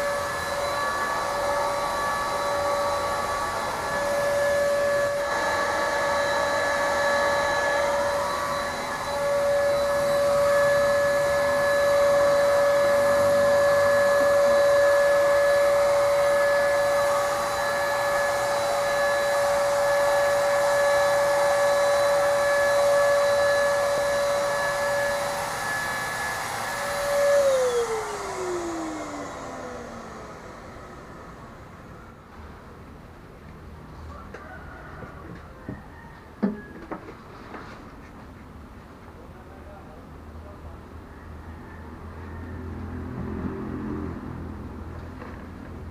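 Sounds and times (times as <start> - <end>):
paint sprayer motor whining: 0.0 - 32.6.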